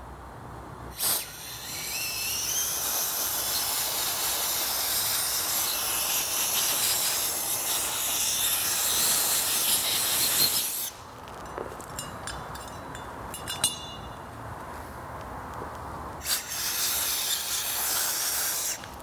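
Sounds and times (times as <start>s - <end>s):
compressed air blow gun hissing: 0.9s - 11.0s, 16.2s - 19.0s.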